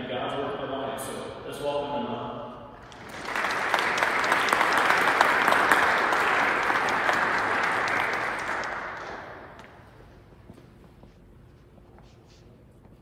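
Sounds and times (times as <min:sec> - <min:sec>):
congregation applauding: 0:02.8 - 0:09.9.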